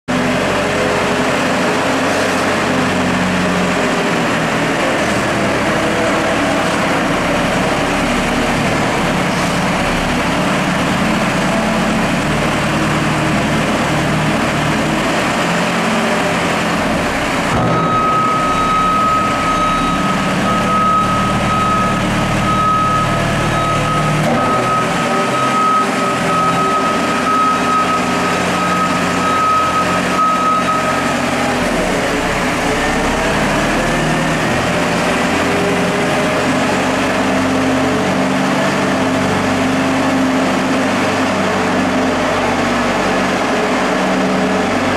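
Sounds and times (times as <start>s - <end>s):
forklift engine running: 0.1s - 44.9s
high reversing alarm tone: 17.7s - 32.0s.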